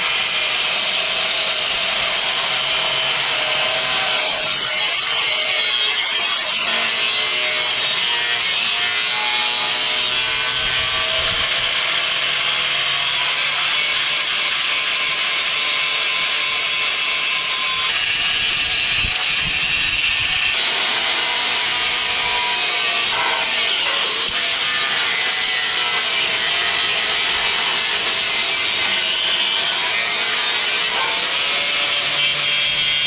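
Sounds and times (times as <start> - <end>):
angle grinder cutting steel: 0.0 - 33.0.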